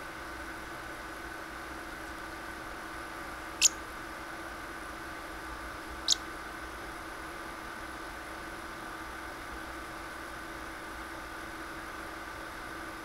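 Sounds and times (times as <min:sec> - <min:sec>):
electrical hum: 0:00.0 - 0:07.1
parrot chirping: 0:03.6 - 0:03.8.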